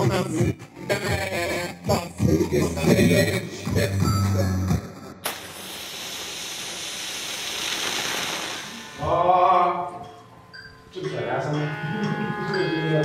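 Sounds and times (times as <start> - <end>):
rush of static-like noise: 5.2 - 9.1.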